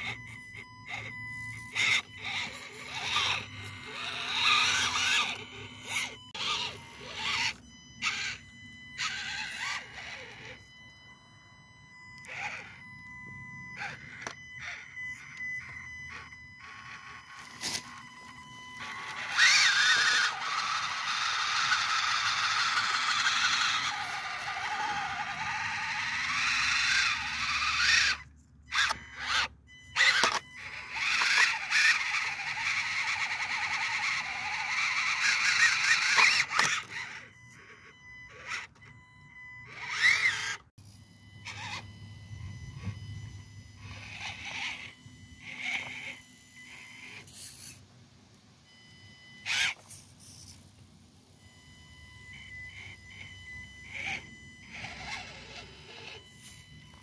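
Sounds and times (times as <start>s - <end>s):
tires scraping on stone: 0.0s - 8.4s, 9.0s - 10.6s, 13.8s - 39.0s, 39.6s - 43.1s
small electric motor whining: 0.0s - 57.0s.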